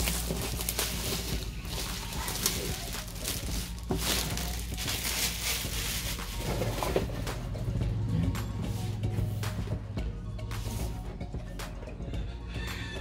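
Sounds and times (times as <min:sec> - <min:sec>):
plastic shrink-wrap crinkling: 0:00.0 - 0:07.1.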